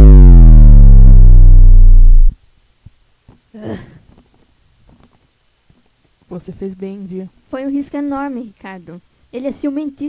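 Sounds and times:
deep synthesizer drone: 0:00.0 - 0:02.4.

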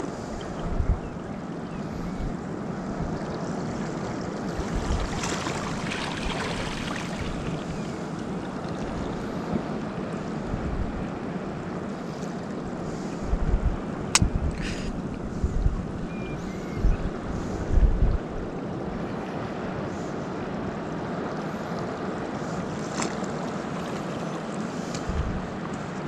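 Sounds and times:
small waves lapping against rock: 0:03.0 - 0:10.4, 0:21.8 - 0:26.0.

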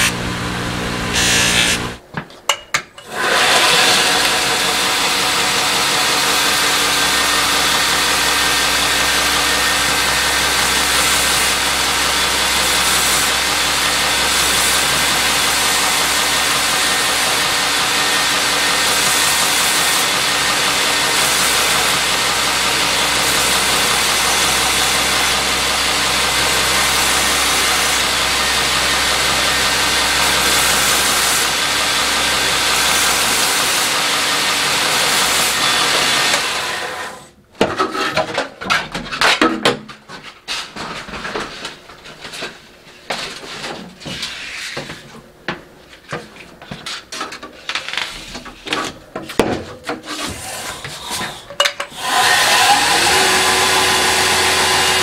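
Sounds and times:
belt grinder motor hum: 0:00.0 - 0:02.0, 0:03.1 - 0:37.3, 0:50.4 - 0:55.0.

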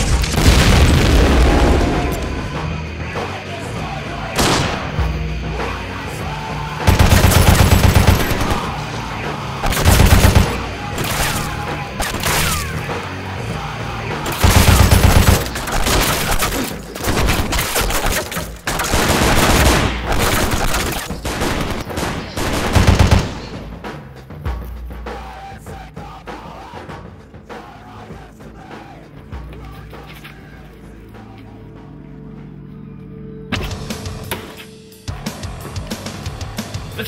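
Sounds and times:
automatic gunfire bursts: 0:06.9 - 0:08.7, 0:09.6 - 0:11.5, 0:14.3 - 0:23.6.

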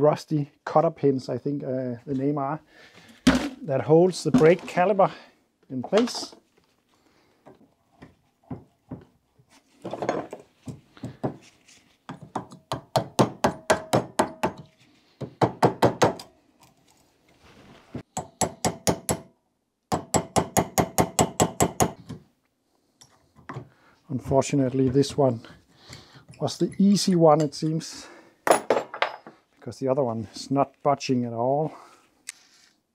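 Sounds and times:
hammer striking metal punch: 0:12.5 - 0:14.6.

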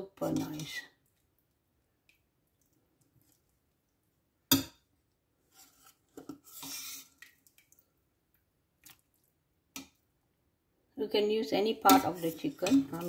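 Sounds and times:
wet slop of food into bowl: 0:05.9 - 0:07.9, 0:08.8 - 0:10.0.

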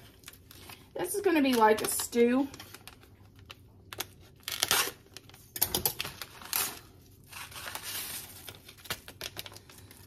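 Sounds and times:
packet tearing and crinkling: 0:02.8 - 0:05.3.

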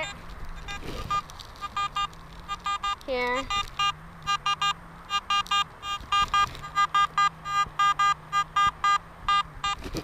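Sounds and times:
metal detector beeping: 0:00.0 - 0:09.9.

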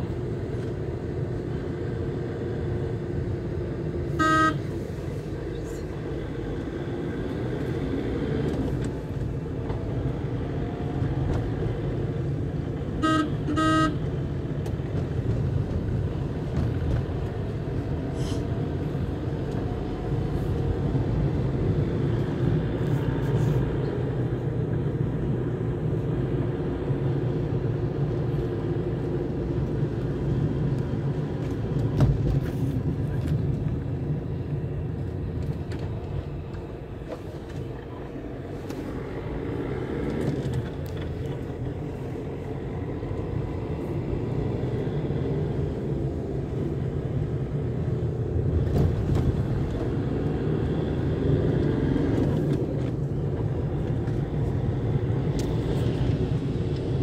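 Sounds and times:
car engine and tyre rumble: 0:00.0 - 0:57.0
vehicle horn beeps: 0:04.1 - 0:04.7, 0:13.0 - 0:14.0.

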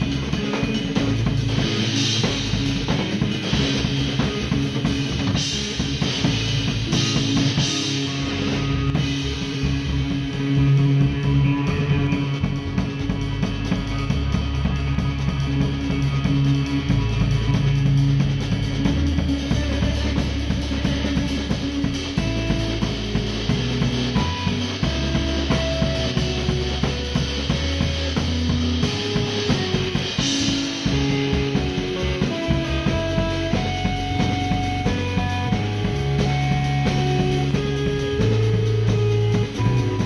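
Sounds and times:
drum kit: 0:00.0 - 0:40.0
electric bass guitar: 0:00.0 - 0:40.0
electric guitar: 0:00.0 - 0:40.0.

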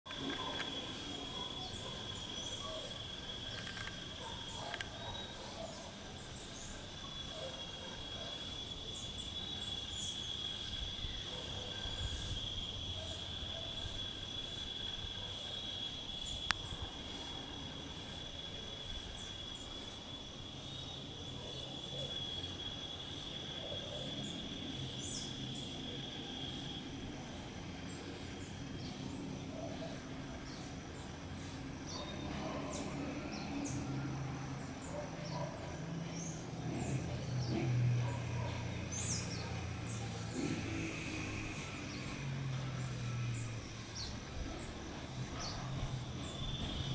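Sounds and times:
high-pitched insect trill: 0:00.1 - 0:46.9.

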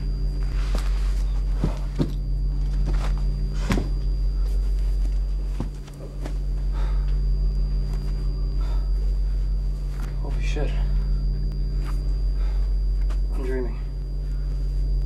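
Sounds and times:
shuffling footsteps: 0:00.0 - 0:13.4
steady low hum: 0:00.0 - 0:15.0.

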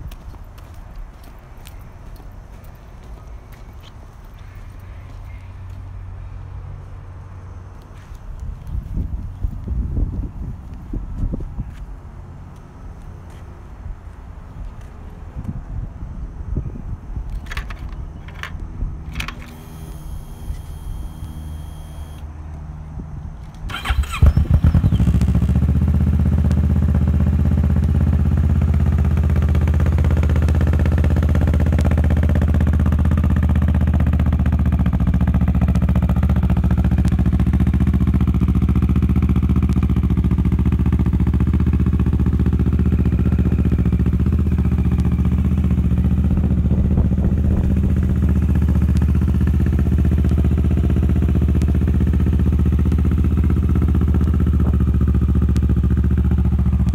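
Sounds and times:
motorcycle engine starting and idling: 0:17.3 - 0:22.3, 0:23.4 - 0:56.9.

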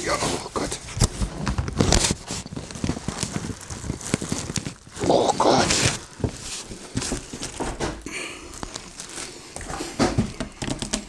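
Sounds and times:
plastic wrapping crinkling: 0:00.0 - 0:11.0
knocks and rustles: 0:00.1 - 0:11.0.

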